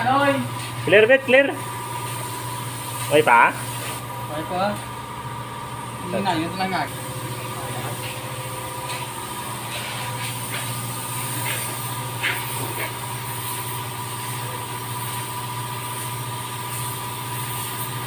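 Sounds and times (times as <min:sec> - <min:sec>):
low machine hum: 0:00.0 - 0:17.4
spray gun hissing: 0:02.0 - 0:04.1, 0:08.9 - 0:18.0.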